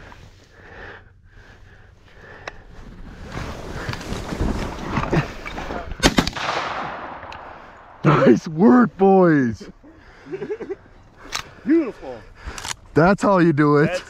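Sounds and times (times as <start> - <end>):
rustling: 1.5 - 6.8
shotgun shots: 6.0 - 8.0.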